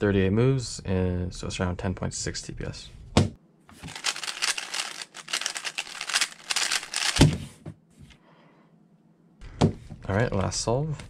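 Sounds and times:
puzzle cube clicking: 3.9 - 7.4.

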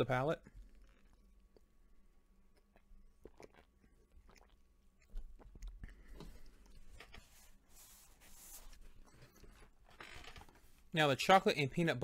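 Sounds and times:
swallowing and mouth sounds: 0.5 - 7.1
paper napkin rustling: 6.8 - 9.5.

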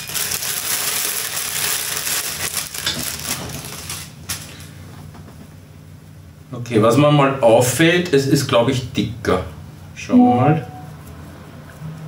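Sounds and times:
plastic packaging crinkling: 0.0 - 4.5.

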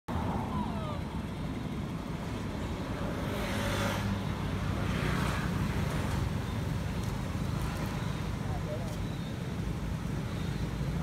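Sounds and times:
vehicle engine rumble: 0.1 - 11.0.

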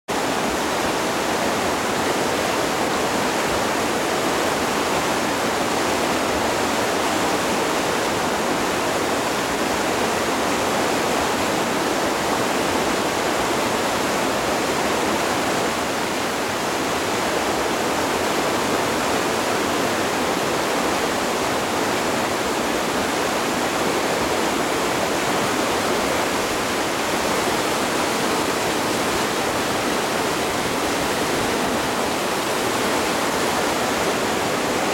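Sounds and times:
water rushing over boulders: 0.1 - 34.9.

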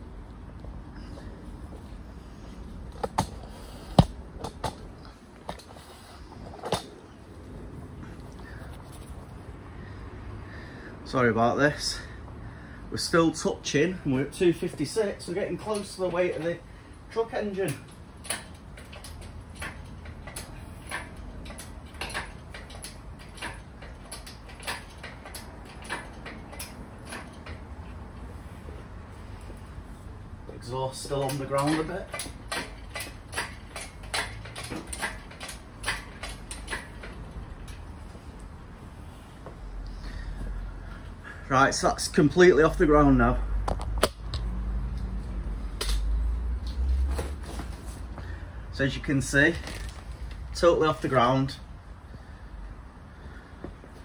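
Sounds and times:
low steady hum: 0.0 - 54.0
engine hoist clicking: 14.2 - 28.4, 30.5 - 38.6, 43.6 - 47.5.

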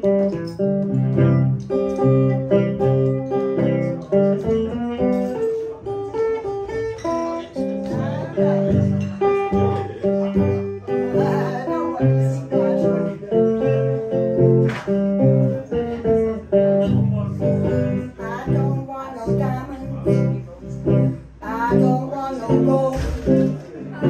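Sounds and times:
guitar playing: 0.0 - 24.0
woman singing: 11.1 - 12.8, 18.2 - 20.1, 21.4 - 23.2.

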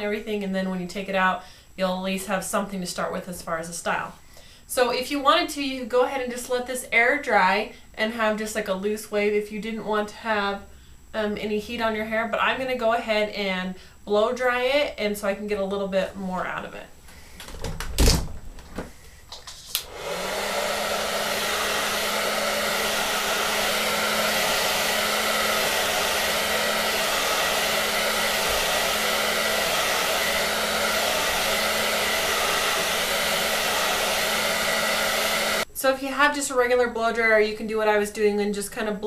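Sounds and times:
hair dryer running: 19.7 - 35.7.

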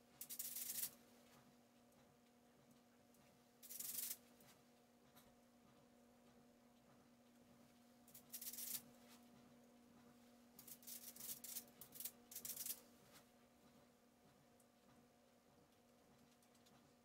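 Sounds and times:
faint steady hum: 0.0 - 17.0
brush bristles scratching: 0.2 - 0.9, 3.6 - 4.2, 10.6 - 12.8.

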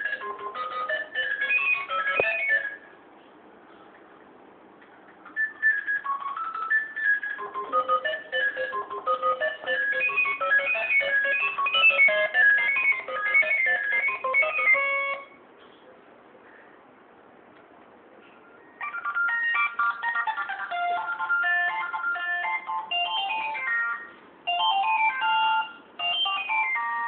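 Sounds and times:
tinny phone ringtone melody: 0.0 - 2.9, 5.3 - 15.4, 18.8 - 27.0.

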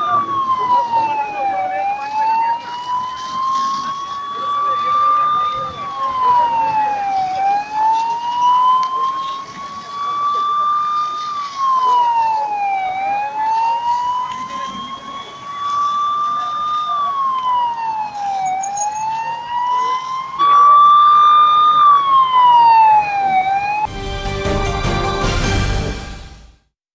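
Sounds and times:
siren wailing: 0.0 - 23.9
loud music: 23.9 - 26.7.

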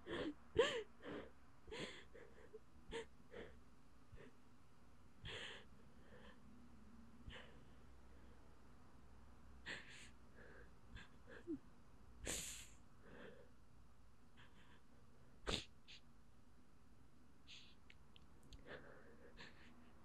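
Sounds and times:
person sniffing and breathing: 12.3 - 13.5, 15.5 - 16.0, 17.5 - 17.8.

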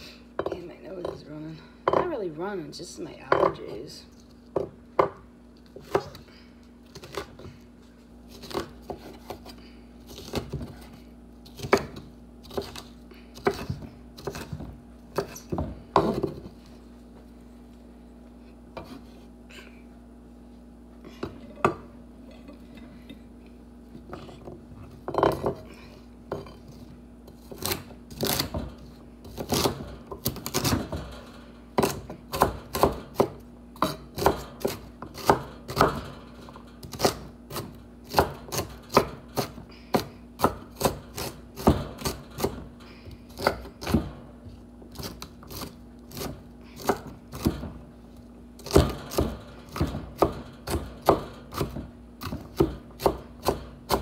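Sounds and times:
knife chopping on wooden board: 11.6 - 16.5, 29.3 - 30.9, 31.8 - 36.1, 36.8 - 42.6, 43.4 - 44.1, 44.9 - 47.7, 48.6 - 54.0.

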